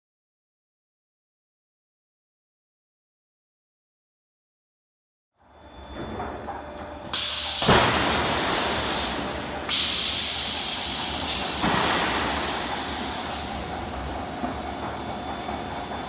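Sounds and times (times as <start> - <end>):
factory machinery hiss and hum: 5.4 - 16.0.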